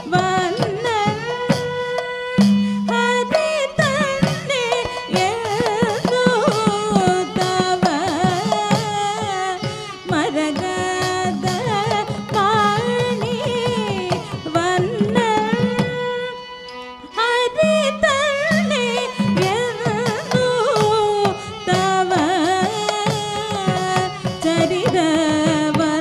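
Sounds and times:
hand drum strokes: 0.0 - 16.3
woman singing: 0.0 - 26.0.

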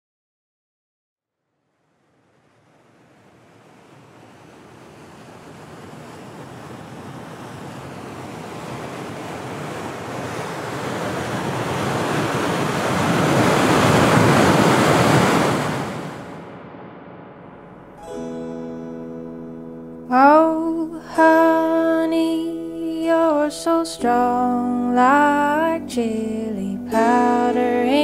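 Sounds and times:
waterfall rushing water: 2.6 - 16.7.

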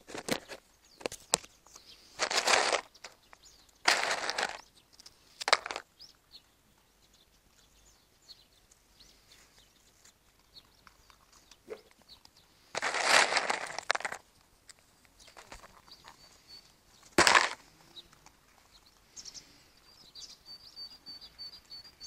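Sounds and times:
short rustling bursts: 1.9 - 3.2, 3.8 - 4.6, 12.6 - 14.2
faint high bird chirps: 15.1 - 22.0.

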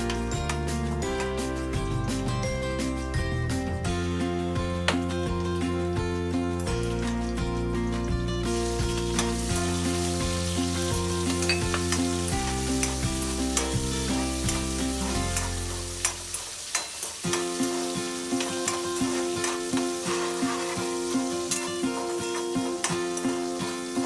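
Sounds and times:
background music: 0.0 - 24.0
vegetables sizzling in hot oil: 7.9 - 24.0
steel spoon scraping a pan: 14.3 - 24.0.

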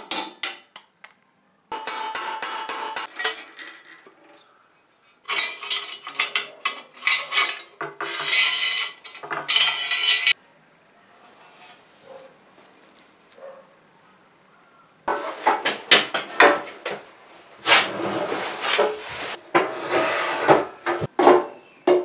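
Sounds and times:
steel parts clinking and rattling: 2.8 - 4.4, 5.0 - 10.4.

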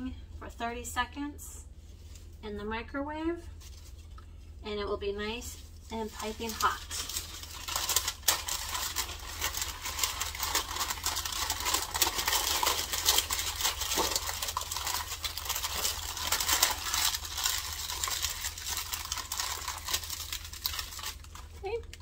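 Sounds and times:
paper crinkling and rustling: 5.6 - 22.0.

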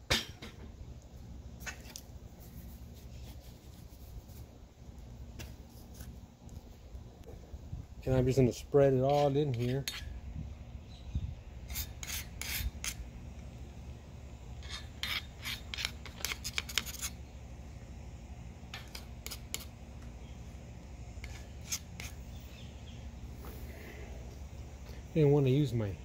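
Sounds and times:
steady low hum: 0.0 - 26.0
stick scraping grease on metal: 8.9 - 10.2, 11.7 - 13.0, 14.6 - 17.2, 18.7 - 19.7, 21.2 - 22.2.

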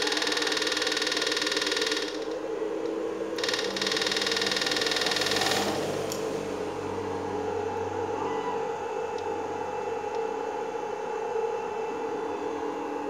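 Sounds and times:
inverter buzzing with rapid pulse: 0.0 - 13.0
low steady hum: 0.0 - 13.0.

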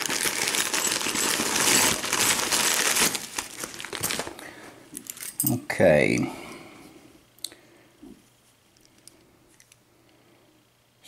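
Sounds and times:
bag crinkling: 0.0 - 4.7
metal pieces clinking: 0.2 - 3.0.

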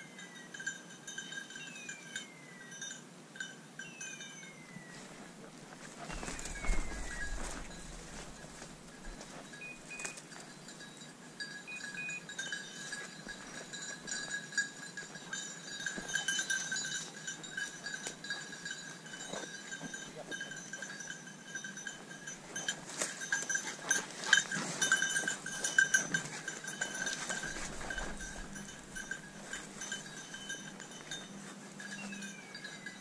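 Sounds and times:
dog collar bell ringing: 0.0 - 4.8, 6.1 - 33.0
twigs and brush crackling: 5.0 - 10.4, 22.9 - 30.3.

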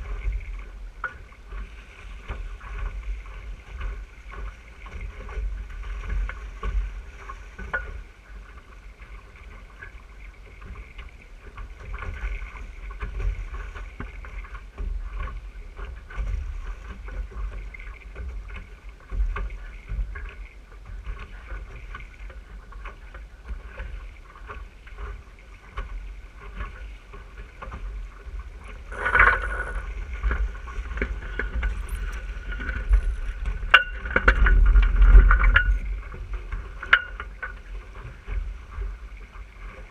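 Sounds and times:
water rushing along hull: 0.0 - 39.9
wind buffeting microphone: 28.1 - 36.6.

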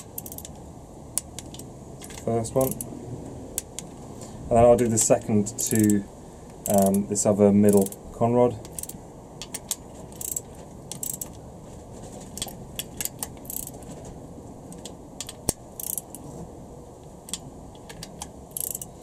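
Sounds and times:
torque wrench ratchet clicking: 0.0 - 0.6, 1.2 - 2.9, 5.6 - 6.0, 6.6 - 7.0, 7.7 - 8.0, 8.6 - 11.4, 12.4 - 13.8, 15.2 - 16.2, 17.3 - 19.0.

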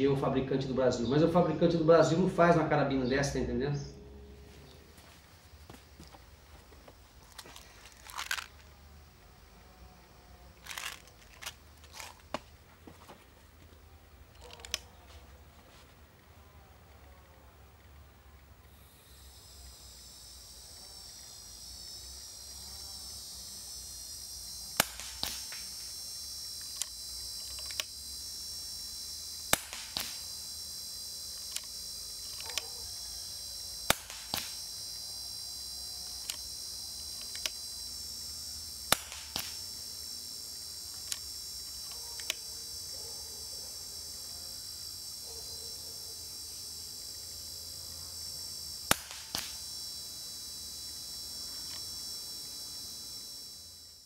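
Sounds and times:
cicada buzzing: 0.0 - 54.0
air rifle shots: 24.8 - 25.7, 29.5 - 30.2, 33.9 - 34.6, 38.9 - 39.6, 48.9 - 49.6.

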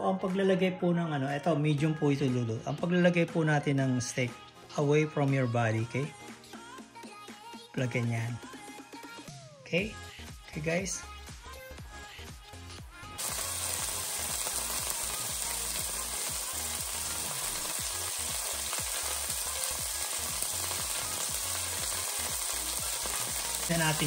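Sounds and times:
steak sizzling in frying pan: 13.2 - 24.0.

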